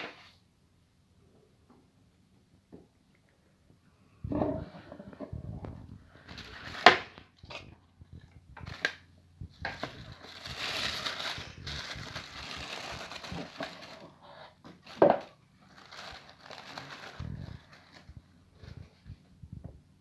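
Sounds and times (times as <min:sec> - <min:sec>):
wrapping paper crinkling and rustling: 0:08.6 - 0:19.2.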